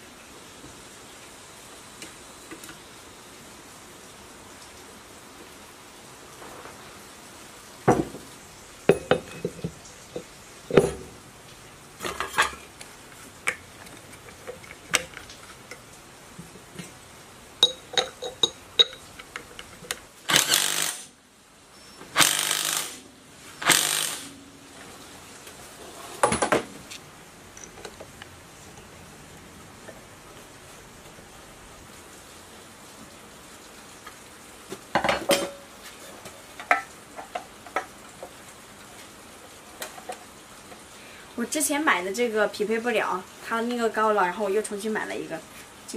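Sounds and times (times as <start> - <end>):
metal engine parts clinking: 8.9 - 11.1, 17.6 - 20.0
harsh bursts of noise: 20.2 - 21.2, 22.1 - 24.4.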